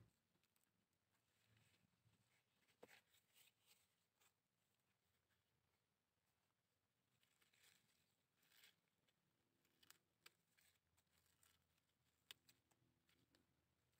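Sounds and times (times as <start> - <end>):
faint rustling of plant cuttings: 0.0 - 13.9.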